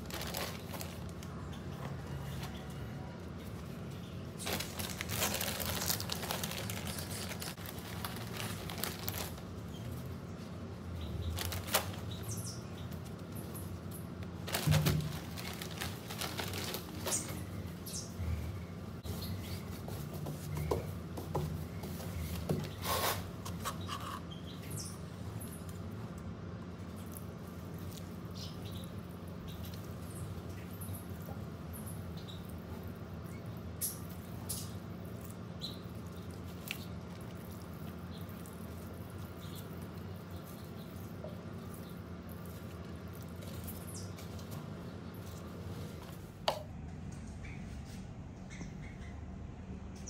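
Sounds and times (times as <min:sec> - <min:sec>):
soil rustling and crumbling: 0:00.0 - 0:02.7, 0:04.3 - 0:10.0
steady low hum: 0:00.0 - 0:50.0.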